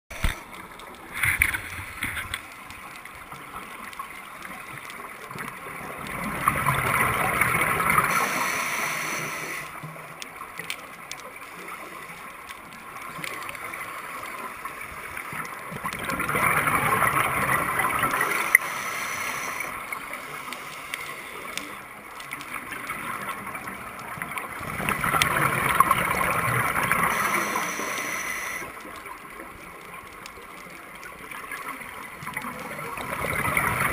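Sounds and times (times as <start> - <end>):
regulator bubbles gurgling underwater: 0.1 - 33.9
diver breathing: 7.9 - 9.8, 18.1 - 21.8, 27.0 - 28.8.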